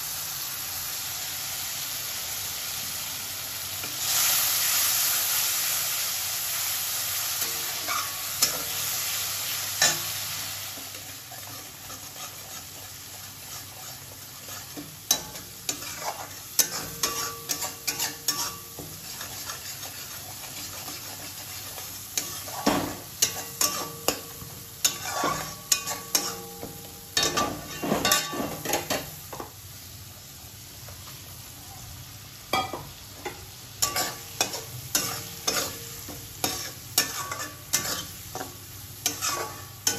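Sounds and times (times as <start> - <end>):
paste sizzling in hot oil: 0.0 - 39.9
metal spatula scraping pan: 10.8 - 29.1, 33.3 - 39.9.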